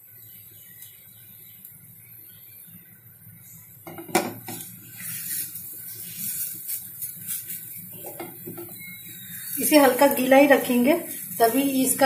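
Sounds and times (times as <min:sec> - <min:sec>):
wooden spatula knocking on pan: 0:03.9 - 0:04.6.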